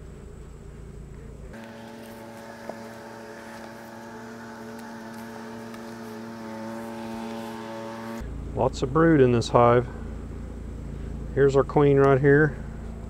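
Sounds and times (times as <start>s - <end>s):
bees buzzing: 0.3s - 8.2s.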